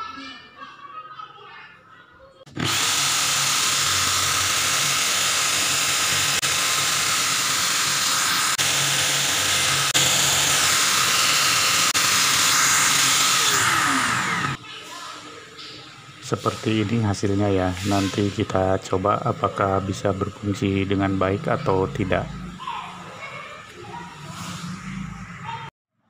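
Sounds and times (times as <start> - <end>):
electric drill grinding drill bit: 2.5 - 14.6.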